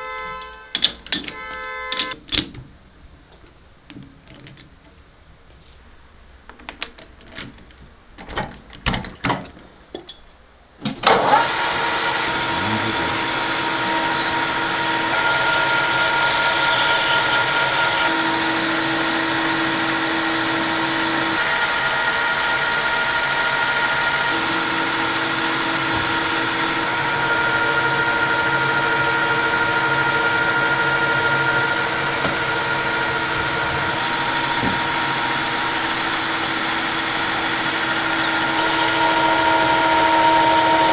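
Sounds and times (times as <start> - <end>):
lathe running with whining tones: 11.1 - 40.9
cutting tool on spinning metal: 11.3 - 32.9, 34.0 - 40.9.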